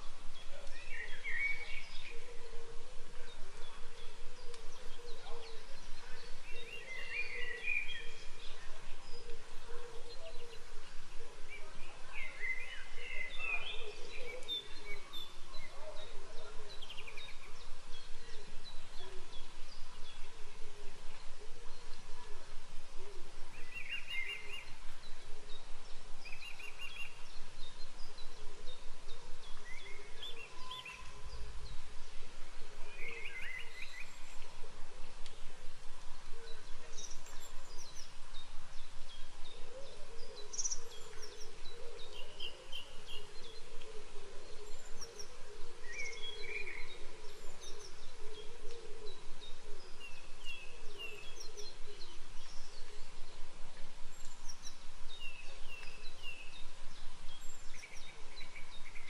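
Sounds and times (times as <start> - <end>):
steady background hiss: 0.0 - 59.0
birds chirping and trilling: 23.5 - 32.1, 32.8 - 34.6, 36.5 - 53.4.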